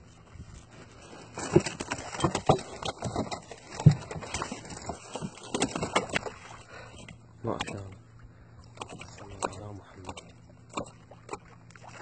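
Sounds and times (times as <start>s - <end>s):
fish slapping on wooden planks: 1.3s - 7.8s.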